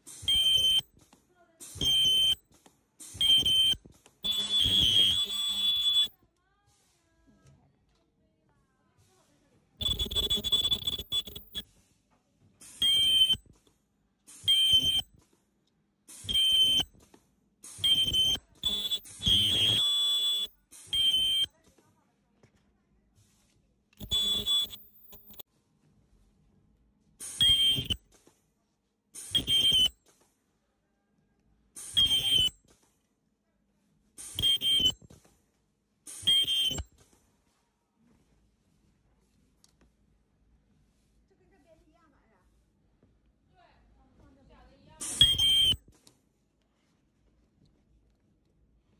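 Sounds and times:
ultrasonic welder squealing: 0:00.1 - 0:00.9, 0:01.7 - 0:02.4, 0:03.1 - 0:06.1, 0:09.8 - 0:11.6, 0:12.7 - 0:13.4, 0:14.3 - 0:15.1, 0:16.2 - 0:17.0, 0:17.7 - 0:21.5, 0:24.0 - 0:25.4, 0:27.2 - 0:28.0, 0:29.2 - 0:30.0, 0:31.8 - 0:32.6, 0:34.2 - 0:35.0, 0:36.1 - 0:37.0, 0:45.0 - 0:45.8.

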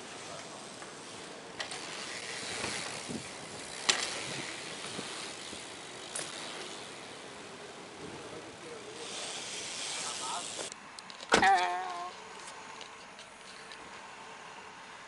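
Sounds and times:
bike tyres rolling on concrete: 0:00.0 - 0:15.0
sharp clack of bike: 0:01.6 - 0:07.0.

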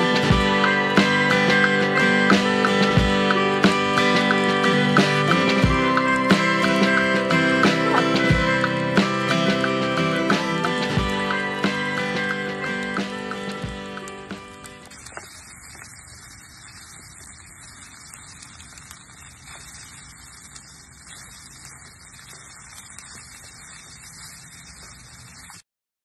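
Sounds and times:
background music: 0:00.0 - 0:14.9
low hiss and rumble: 0:00.0 - 0:25.6.

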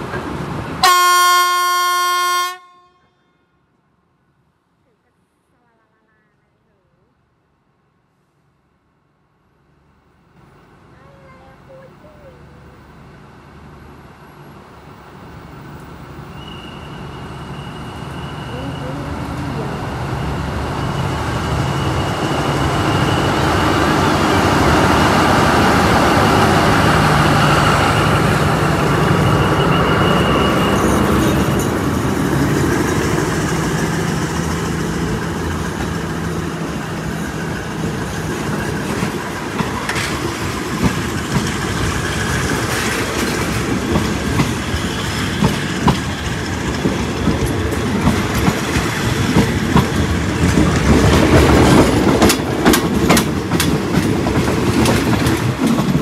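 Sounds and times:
train rumble and hum: 0:00.0 - 0:02.6, 0:08.8 - 0:56.0
wheels clicking over rail joints: 0:38.2 - 0:56.0.

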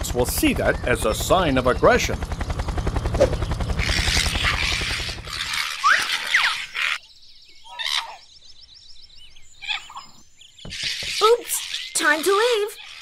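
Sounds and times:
cartoon helicopter rotor thudding: 0:00.0 - 0:06.2
faint jungle ambience: 0:00.0 - 0:13.0.

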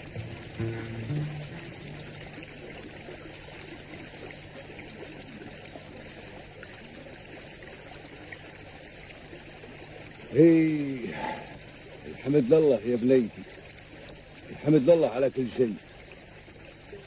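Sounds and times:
background music: 0:00.0 - 0:02.6
low steady hum: 0:00.0 - 0:07.0
stream water trickling: 0:00.0 - 0:17.0.

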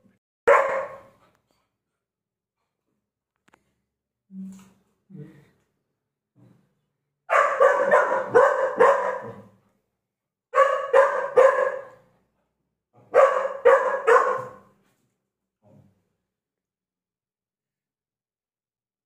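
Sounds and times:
puppy barking: 0:00.5 - 0:01.2, 0:07.3 - 0:09.6, 0:10.5 - 0:12.1, 0:13.0 - 0:14.7.

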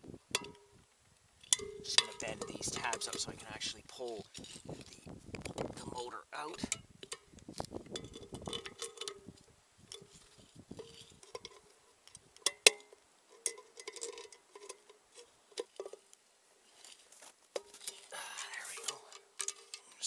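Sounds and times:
metallic clicks and clinks: 0:01.4 - 0:05.6, 0:08.0 - 0:09.2, 0:17.6 - 0:20.0.

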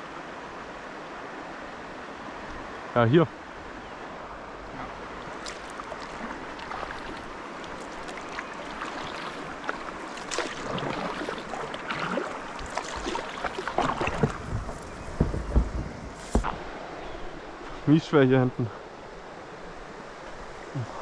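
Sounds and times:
water splashing and lapping: 0:04.7 - 0:16.6
knocks and scrapes on kayak hull: 0:12.6 - 0:16.6.

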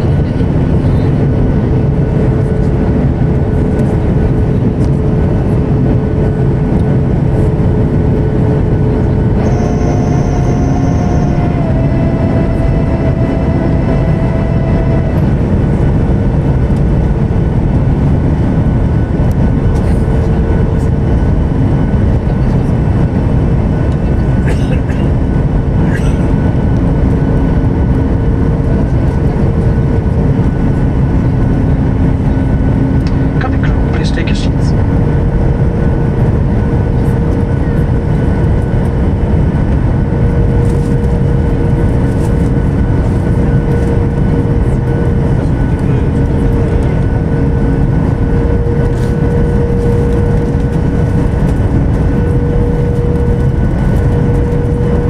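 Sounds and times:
jet engine cabin rush: 0:00.0 - 0:55.0
low steady hum: 0:00.0 - 0:55.0
higher tone: 0:08.9 - 0:16.1.

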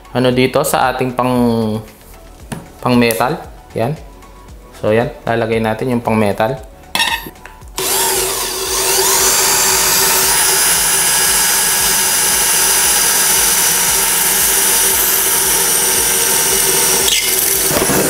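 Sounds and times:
cordless drill motor whine: 0:07.8 - 0:18.0
drill bit drilling into metal: 0:07.8 - 0:18.0.

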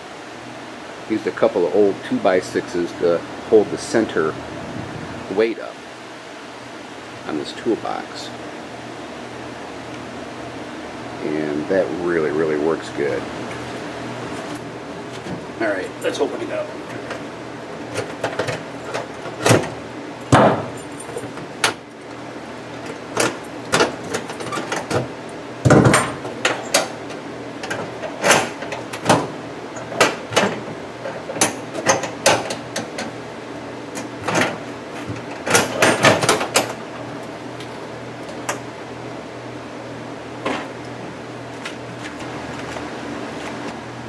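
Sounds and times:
padlocks clicking and clanking: 0:22.8 - 0:25.0.

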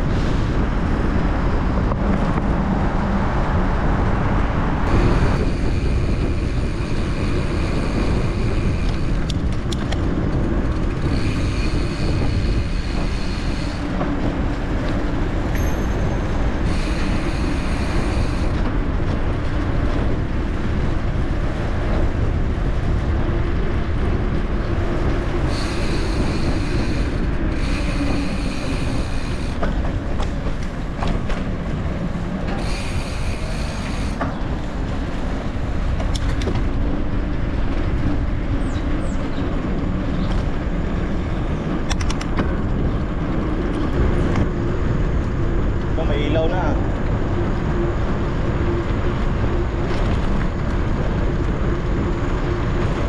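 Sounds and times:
tyres rumbling over rough ground: 0:00.0 - 0:53.0
wind on microphone: 0:00.0 - 0:53.0.

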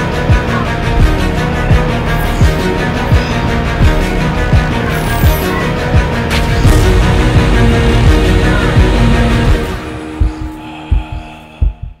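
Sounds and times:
low drone: 0:00.0 - 0:12.0
heartbeat thumps: 0:09.5 - 0:12.0.

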